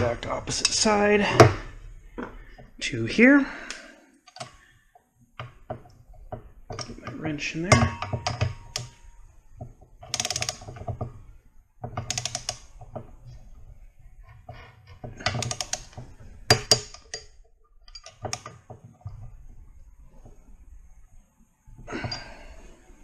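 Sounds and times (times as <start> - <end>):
ratchet wrench clicking: 10.1 - 10.6.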